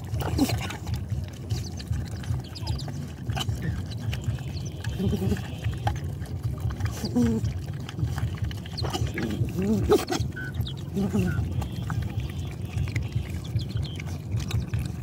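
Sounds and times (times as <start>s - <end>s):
dogs lapping wet food: 0.0s - 15.0s.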